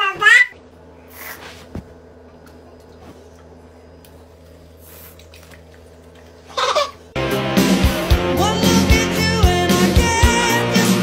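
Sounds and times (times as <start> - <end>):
small child's voice: 0.0 - 0.6
faint steady hum: 0.0 - 7.2
music with singing: 7.2 - 11.0.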